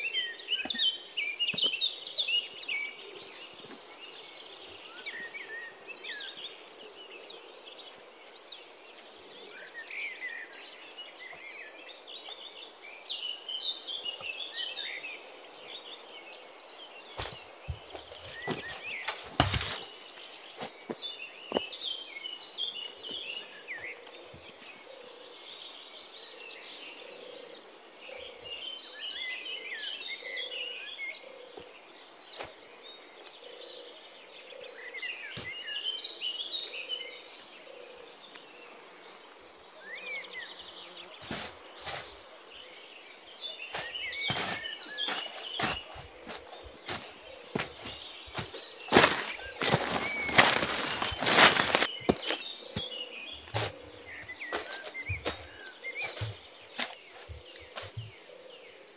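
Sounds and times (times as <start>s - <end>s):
birds chirping: 0.0s - 58.9s
footsteps in undergrowth: 17.0s - 21.8s, 41.1s - 42.2s, 43.6s - 58.3s
high insect whine: 37.9s - 58.9s.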